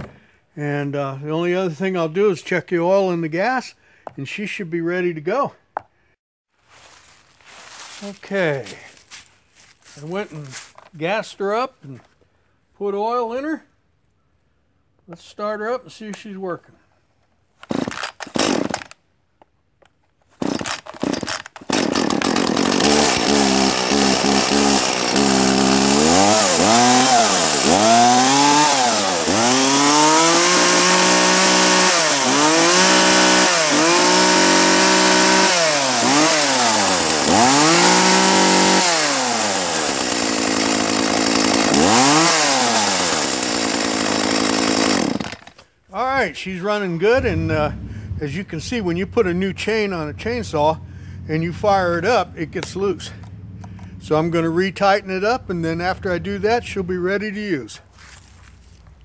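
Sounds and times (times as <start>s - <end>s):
chainsaw idling and revving: 17.6s - 19.0s, 20.4s - 45.6s, 47.2s - 57.4s
chainsaw pull cord starting: 17.6s - 19.0s, 20.3s - 45.7s.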